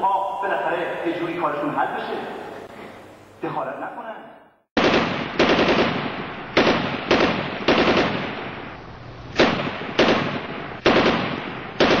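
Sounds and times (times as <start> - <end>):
automatic gunfire bursts: 4.8 - 8.4, 9.4 - 12.0.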